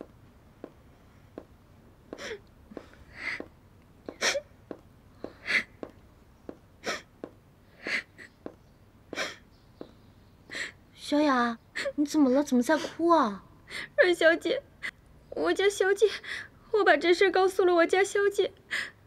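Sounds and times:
heeled footsteps on wooden floor: 0.0 - 7.4, 8.4 - 8.6.

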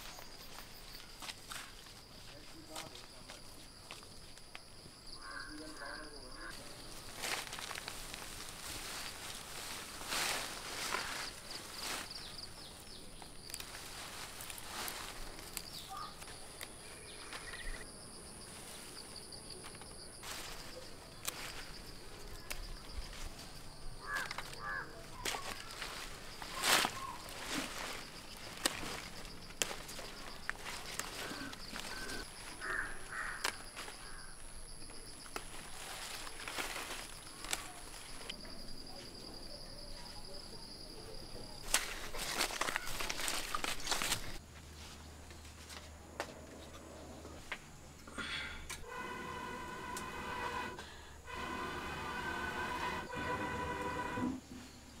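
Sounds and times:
insects trilling: 0.0 - 44.4
vines and grass rustling: 0.0 - 55.0
high insect buzz: 13.4 - 34.6, 48.7 - 55.0.

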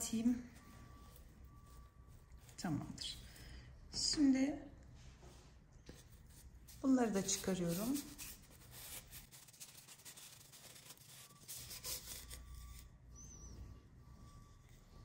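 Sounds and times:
paper yarn rubbing and rustling: 6.0 - 12.8.

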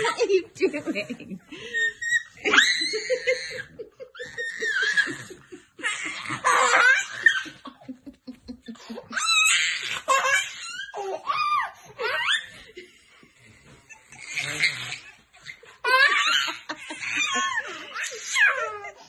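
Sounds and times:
toddler laughing: 1.7 - 12.6.

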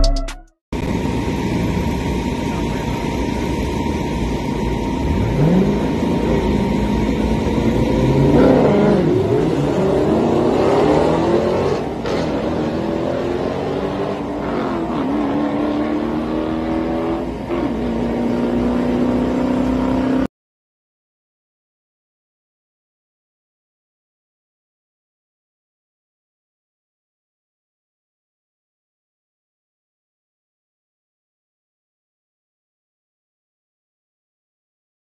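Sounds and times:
car engine revving: 0.8 - 20.3
road noise: 0.8 - 20.3.

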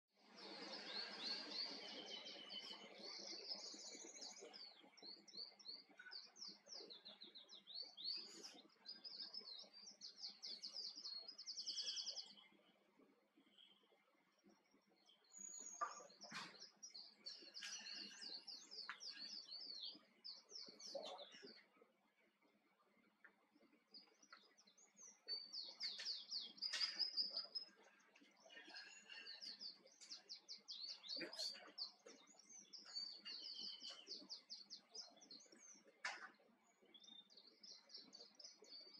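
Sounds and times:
canary singing trills: 23.9 - 38.9.

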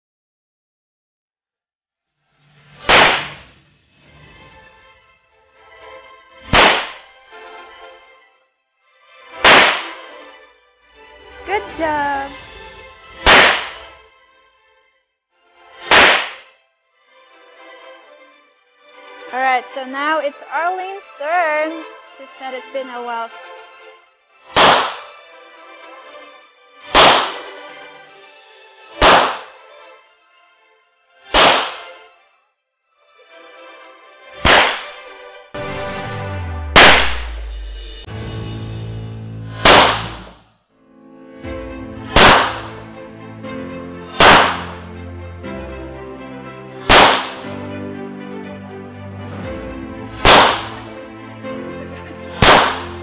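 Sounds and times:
background music: 2.4 - 53.0
pistol shots: 6.5 - 7.0, 13.3 - 13.8, 15.9 - 16.4, 24.6 - 25.0, 39.7 - 40.2, 42.2 - 42.6, 44.2 - 44.7, 46.9 - 47.4, 50.2 - 50.6, 52.4 - 52.9.

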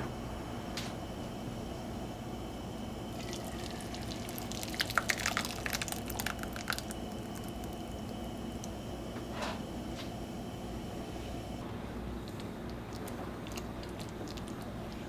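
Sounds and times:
sauce crackling in a skillet: 3.2 - 8.2.

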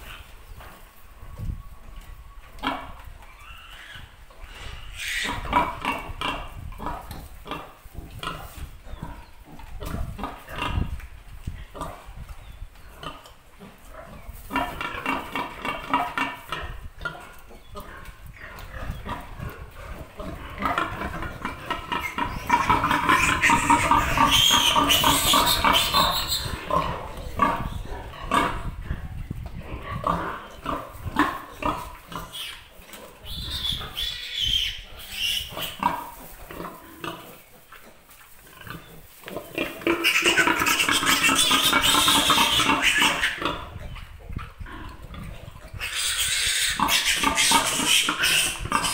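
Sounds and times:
piglets grunting: 2.7 - 10.9, 18.4 - 28.9, 39.5 - 48.9
piglets squealing: 3.3 - 5.9, 21.9 - 26.7, 32.2 - 36.0, 39.9 - 43.6, 45.7 - 48.9.

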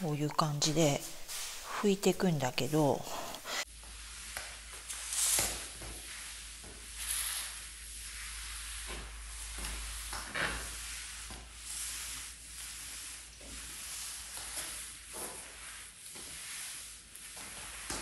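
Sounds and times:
wet mop swishing on tiled floor: 0.0 - 18.0.

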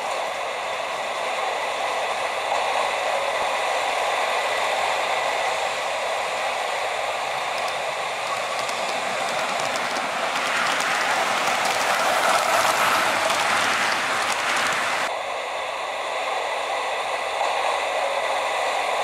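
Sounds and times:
model train running on track: 0.0 - 19.0
faint clicks: 7.3 - 15.1.

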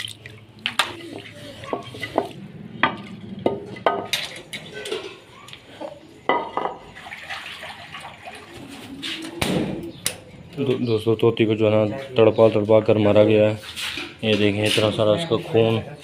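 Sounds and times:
cloth scrubbing clay bowl: 0.0 - 2.4
water sloshing: 0.0 - 5.5, 6.4 - 9.4.

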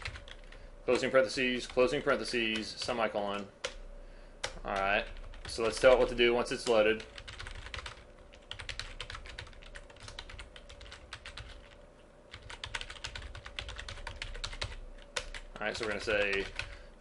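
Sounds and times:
typing on computer keyboard: 0.0 - 0.5, 4.4 - 16.8.

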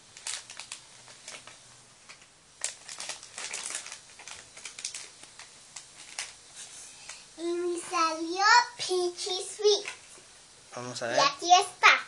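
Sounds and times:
plastic wrapper tearing and crinkling: 0.0 - 6.4.

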